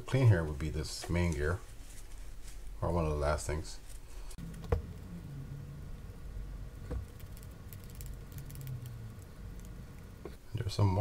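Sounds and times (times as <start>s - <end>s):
low steady hum: 0.0s - 11.0s
toothbrush scrubbing gear teeth: 7.1s - 10.1s.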